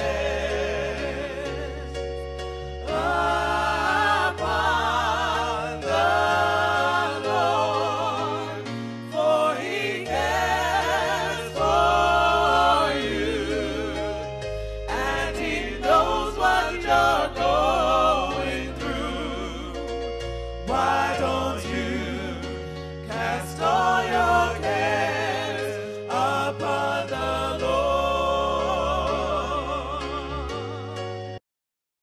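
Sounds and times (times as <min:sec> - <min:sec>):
gospel singing voice: 0:00.0 - 0:31.4.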